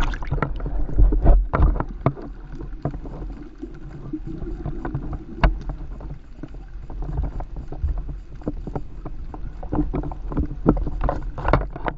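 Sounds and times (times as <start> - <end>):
underwater clicks and pops: 0.0 - 3.2, 4.4 - 5.8
muffled underwater rumble: 0.0 - 11.9.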